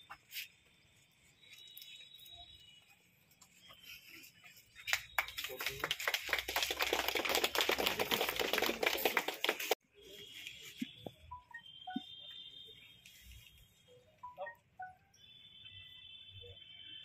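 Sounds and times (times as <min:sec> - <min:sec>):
small group clapping: 0:04.8 - 0:09.8.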